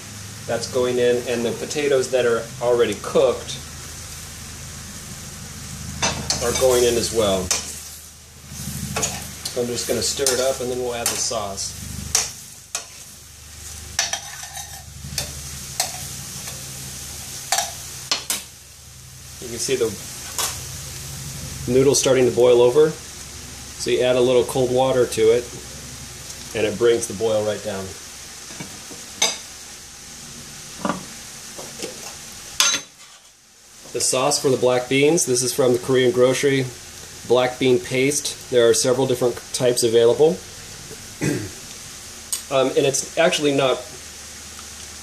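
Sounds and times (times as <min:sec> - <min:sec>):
vegetables sizzling: 0:00.0 - 0:45.0
water boiling in a pot: 0:00.0 - 0:45.0
utensil scraping frying pan: 0:05.8 - 0:18.5, 0:20.0 - 0:20.7, 0:30.7 - 0:33.4.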